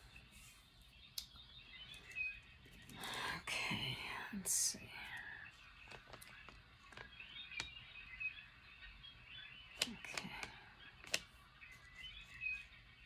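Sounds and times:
faint high chirping: 0.0s - 13.0s
faint sharp clicks and taps: 5.0s - 7.8s, 9.8s - 11.3s.

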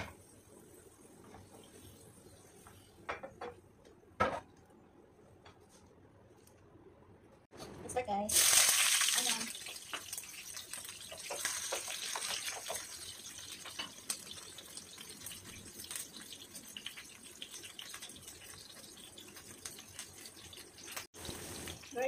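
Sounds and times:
onions sizzling in hot oil: 8.3s - 22.0s.

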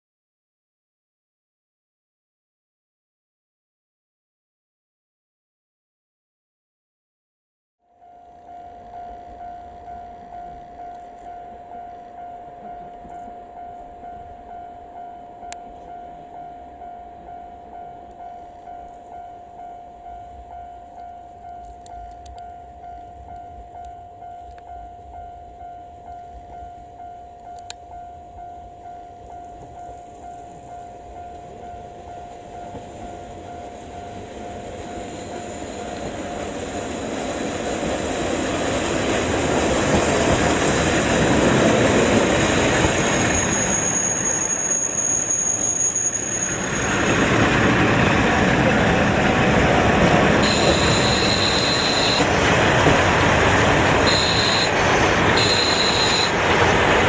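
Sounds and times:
diesel railcar engine and wheels: 7.8s - 57.0s
level crossing alarm ringing: 7.9s - 37.1s, 47.9s - 57.0s
high wheel squeal: 34.8s - 37.0s, 42.0s - 49.5s, 50.3s - 52.5s, 53.4s - 57.0s.

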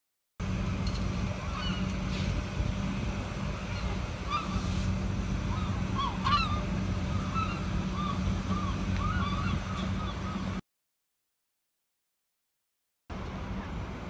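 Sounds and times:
steady low rumble: 0.4s - 10.6s
gulls calling: 1.1s - 10.6s.

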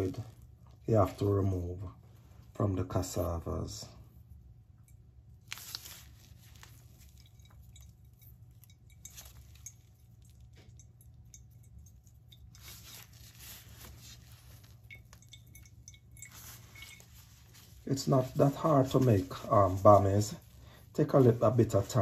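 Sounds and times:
wet cloth squishing: 5.3s - 22.0s.

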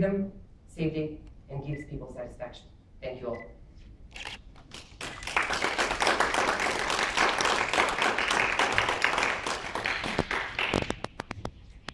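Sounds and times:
audience applauding: 4.7s - 11.2s.

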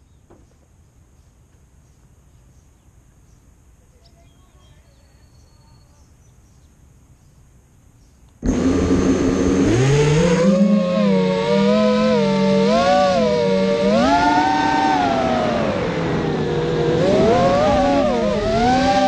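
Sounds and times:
quadcopter motors buzzing whine: 8.4s - 19.0s.

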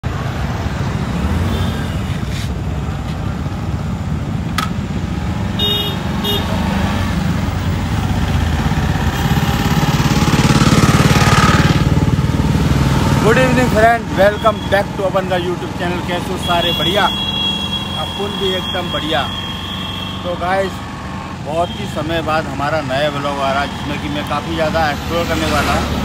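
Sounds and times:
road traffic passing: 0.0s - 26.0s
horn toots: 5.6s - 6.7s, 9.1s - 10.0s
motorcycle engine running: 7.6s - 13.9s.

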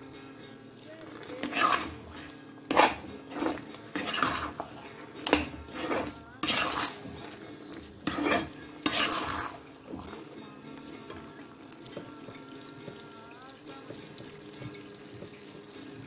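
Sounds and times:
ladle scraping in a pan: 0.8s - 13.2s.

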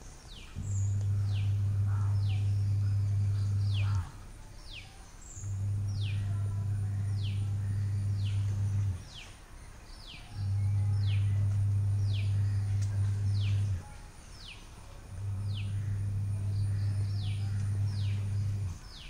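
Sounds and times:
bird chirping: 0.0s - 19.0s
loud low hum: 0.3s - 9.2s, 9.9s - 19.0s.

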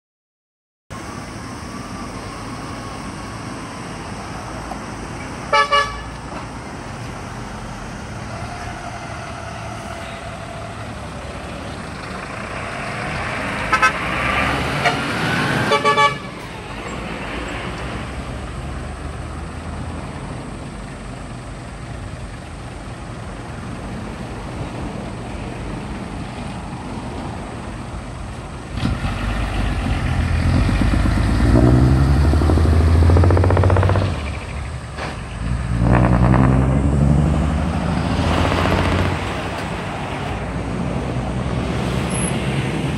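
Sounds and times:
diesel truck engines passing: 0.9s - 42.9s
air horn blasts: 5.5s - 6.2s, 13.7s - 14.0s, 14.8s - 16.4s.

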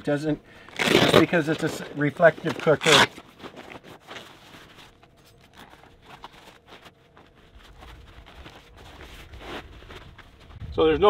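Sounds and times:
low rumble: 10.1s - 11.0s.

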